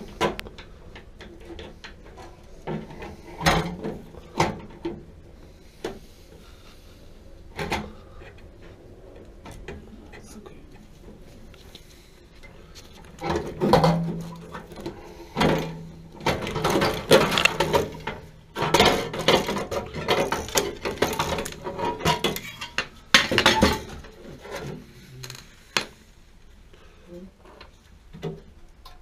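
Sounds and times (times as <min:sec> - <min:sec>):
sheet metal clattering and scraping: 0:12.9 - 0:25.0.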